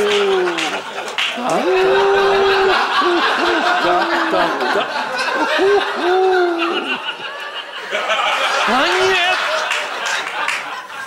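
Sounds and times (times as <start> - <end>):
voice in long held tones: 0.0 - 7.3
studio audience laughing: 0.0 - 11.0.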